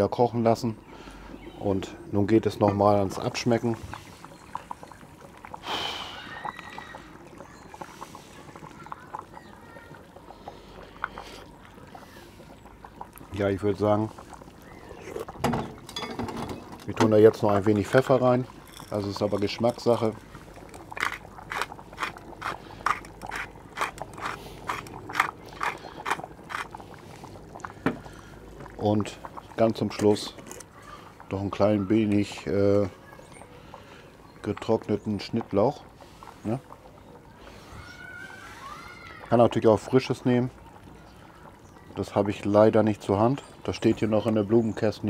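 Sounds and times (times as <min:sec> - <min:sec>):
stew bubbling with pops: 0:00.0 - 0:45.0
pepper mill grinding: 0:20.9 - 0:26.7.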